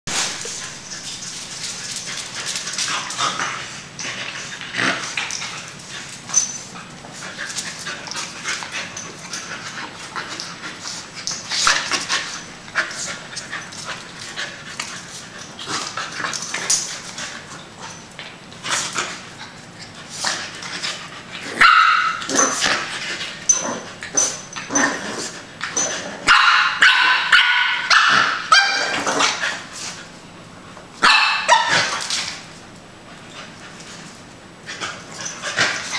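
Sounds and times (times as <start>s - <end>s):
dogs scuffling: 0.1s - 26.2s, 27.8s - 35.9s
dogs barking and yipping: 21.2s - 29.7s, 31.0s - 32.2s.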